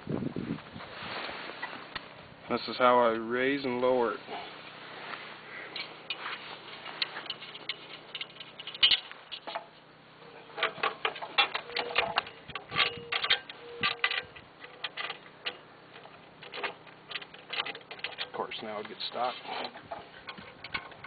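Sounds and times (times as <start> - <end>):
metal clicks and clacks: 7.2 - 9.7, 10.5 - 21.0
short squeaks: 10.2 - 15.3.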